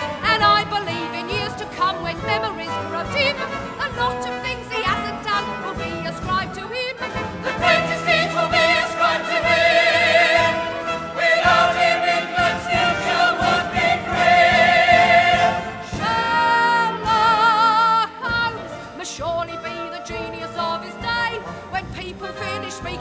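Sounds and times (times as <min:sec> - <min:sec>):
show tune with orchestra: 0:00.0 - 0:23.0
voices singing with vibrato: 0:07.5 - 0:20.9.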